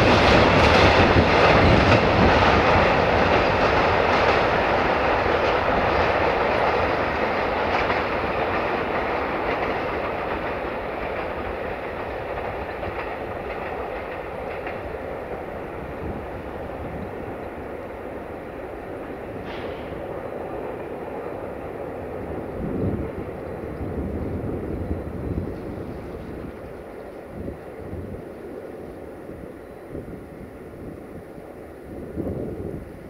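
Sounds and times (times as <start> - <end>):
train wheels clattering over rail joints: 0.0 - 24.0.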